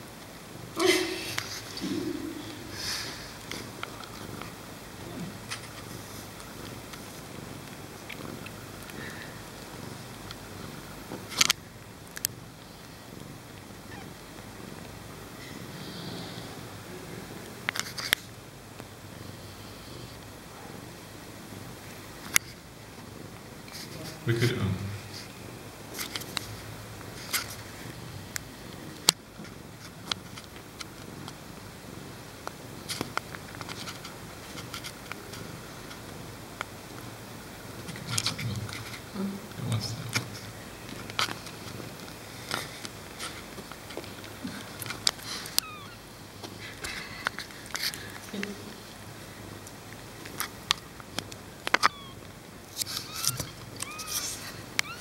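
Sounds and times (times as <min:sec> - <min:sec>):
cat purring: 0:00.5 - 0:55.0
sharp clicks and rustles: 0:03.4 - 0:15.0, 0:17.6 - 0:19.0, 0:25.0 - 0:31.7, 0:32.4 - 0:37.2, 0:39.7 - 0:55.0
kitten squeaks: 0:13.9 - 0:14.1, 0:45.5 - 0:46.0, 0:51.7 - 0:52.2, 0:52.9 - 0:55.0
kittens suckling: 0:37.7 - 0:55.0.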